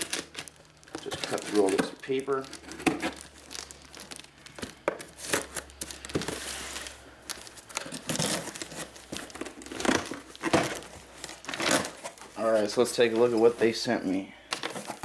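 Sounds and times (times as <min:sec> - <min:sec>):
crinkling and tearing: 0:00.0 - 0:13.8.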